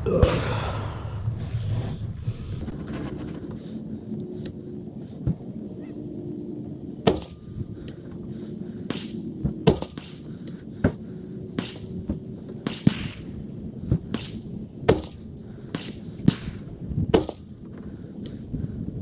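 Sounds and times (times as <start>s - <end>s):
loud rifle shots: 7.0s - 7.6s, 8.9s - 10.3s, 11.6s - 12.0s, 12.6s - 13.4s, 14.1s - 17.6s
faint gunshot cracks: 11.6s - 11.9s, 12.6s - 13.3s, 14.1s - 17.5s.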